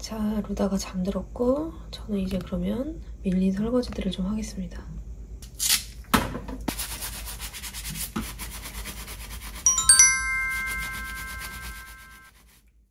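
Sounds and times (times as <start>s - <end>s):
sponge scrubbing dishes: 6.7s - 9.6s
bell-like chime: 9.7s - 12.3s.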